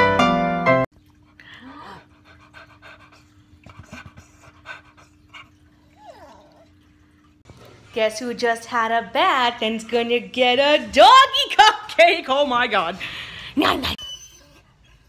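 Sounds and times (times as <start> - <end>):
piano music: 0.0 - 0.9
dog panting: 2.0 - 6.7.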